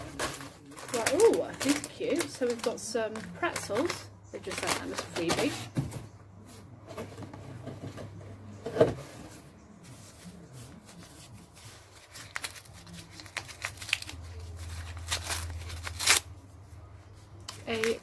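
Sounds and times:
wrapping paper rustling: 0.0 - 5.7, 9.8 - 16.4, 17.4 - 18.0.

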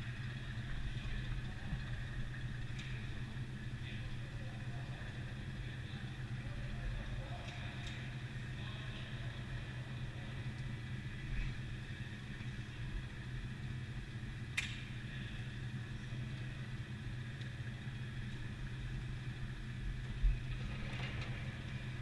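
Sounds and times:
steady low indoor hum: 0.0 - 22.0
sharp click: 14.6 - 14.9.

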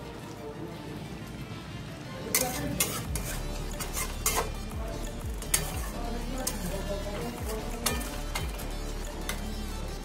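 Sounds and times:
metal spatula scraping a pot: 2.3 - 10.0.

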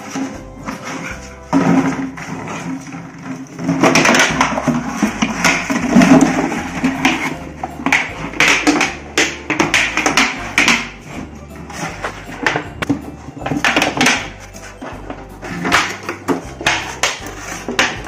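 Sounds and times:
background music: 0.0 - 18.0.

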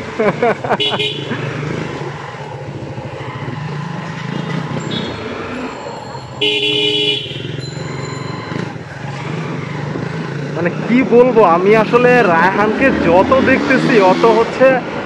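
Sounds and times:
motorcycle engines running: 0.0 - 15.0
vehicle horn honking: 0.8 - 1.3, 6.4 - 7.8.

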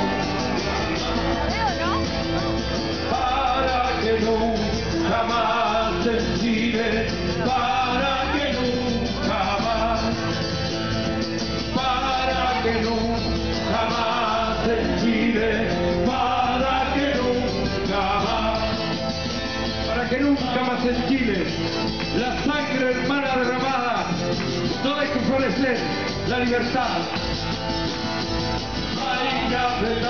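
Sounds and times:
guitars playing: 0.0 - 30.0
person singing: 3.0 - 10.6, 11.6 - 19.1, 28.9 - 30.0.

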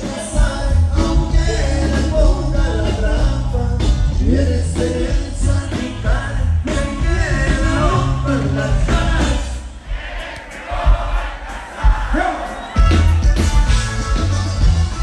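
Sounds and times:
steady bass line: 0.0 - 9.6, 12.8 - 15.0
live band playing: 0.0 - 15.0.

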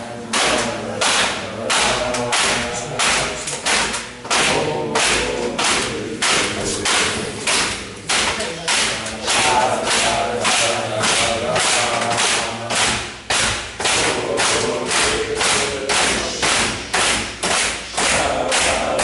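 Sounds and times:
men chanting together: 0.0 - 19.0
hands pounding a table: 0.3 - 19.0.

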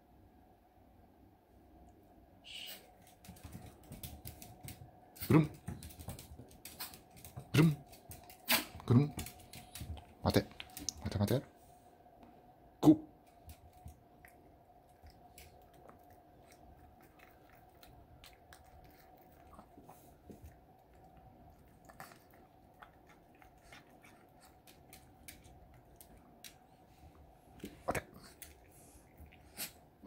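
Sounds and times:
faint steady hum: 0.0 - 30.0
small dog chewing and licking: 13.2 - 26.8, 27.6 - 29.9.

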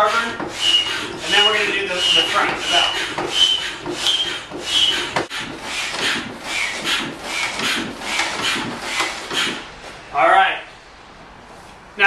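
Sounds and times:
foot pump rushing air: 0.0 - 10.1.

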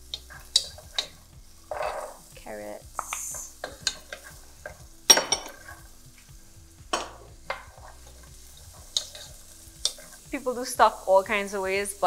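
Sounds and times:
wooden spoon scraping pot: 3.0 - 4.8, 5.4 - 5.9, 7.1 - 10.4
spoon knocking against pot: 6.9 - 7.9.

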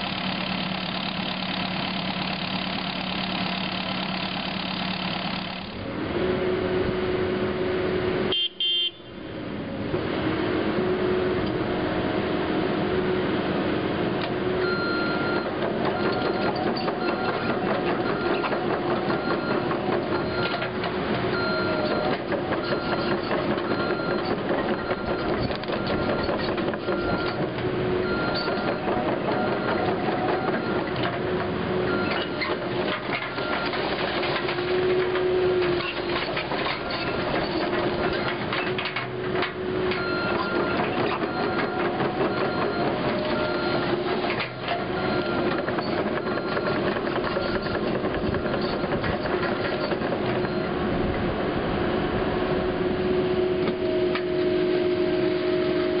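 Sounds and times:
diesel engine running: 0.0 - 8.4, 9.1 - 56.0
travel alarm beeping: 8.3 - 9.2, 14.6 - 31.0, 39.9 - 49.0
tracks clattering: 14.6 - 51.4.

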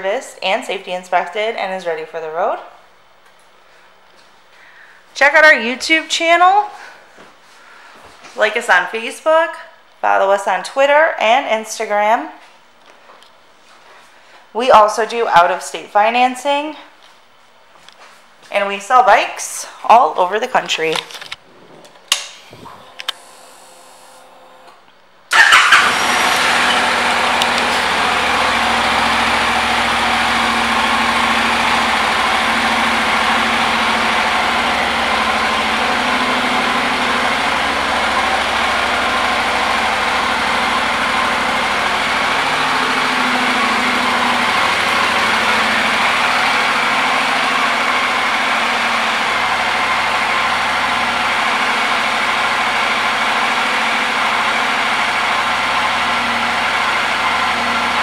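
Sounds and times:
motorcycle engine idling: 25.3 - 58.0.

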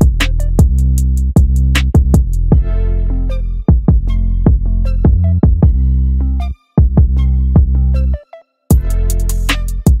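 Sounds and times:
music with bass and drum beat: 0.0 - 2.8, 3.7 - 6.0, 6.8 - 8.1, 8.7 - 10.0.

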